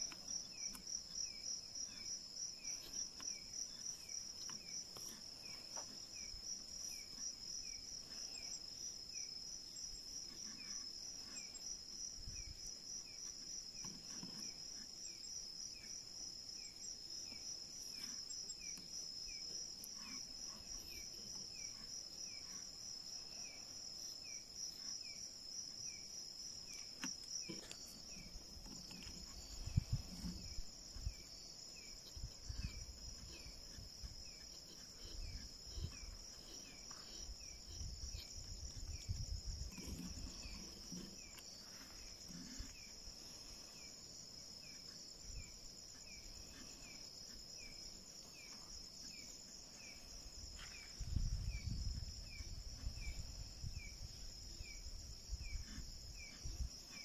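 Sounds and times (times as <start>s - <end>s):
crickets chirping: 0.0s - 57.0s
low thumps and rustles: 26.6s - 43.9s.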